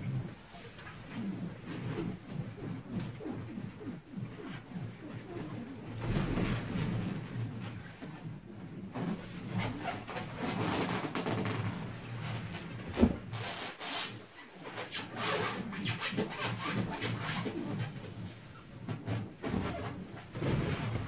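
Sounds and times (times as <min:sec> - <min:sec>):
balloons squeaking and rubbing: 0:08.6 - 0:21.0.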